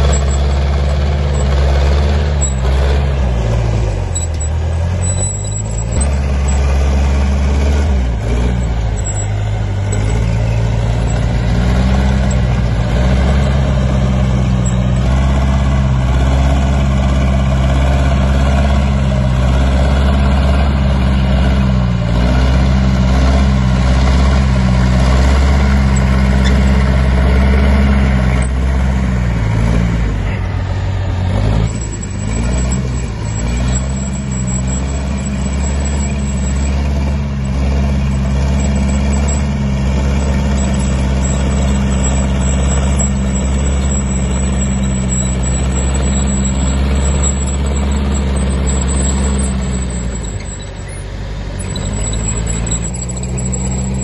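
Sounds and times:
bulldozer diesel engine running: 0.0s - 54.0s.

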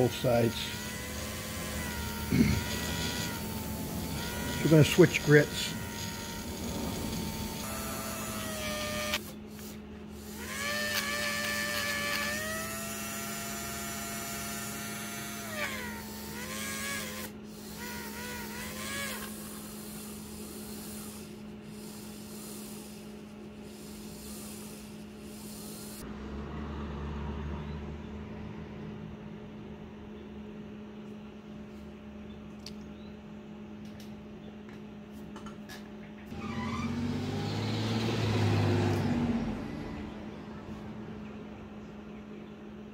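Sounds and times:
low hum: 0.0s - 17.0s
small electric motor whine: 0.0s - 26.1s, 36.3s - 40.2s.

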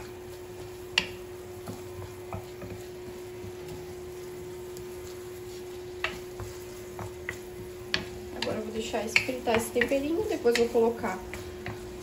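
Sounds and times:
vegetables sizzling in a pan: 0.0s - 12.0s
wooden spoon scraping a pan: 0.0s - 12.0s
spoon knocking against pan: 0.9s - 2.8s, 6.0s - 11.8s.

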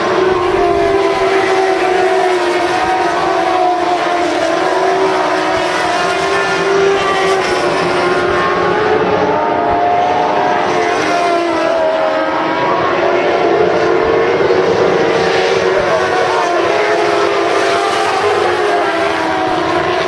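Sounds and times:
race car engines: 0.0s - 20.0s.

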